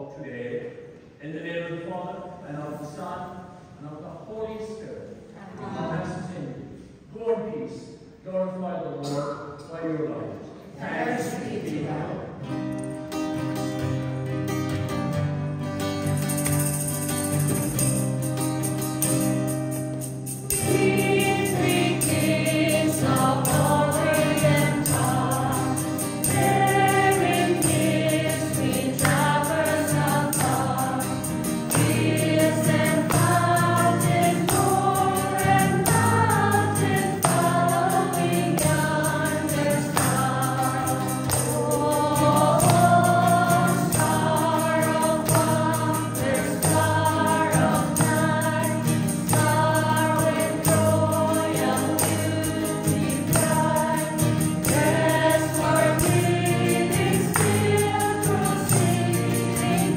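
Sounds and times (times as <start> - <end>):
church choir singing a hymn: 10.7 - 12.4, 20.5 - 59.9
low accompanying notes: 16.1 - 59.9.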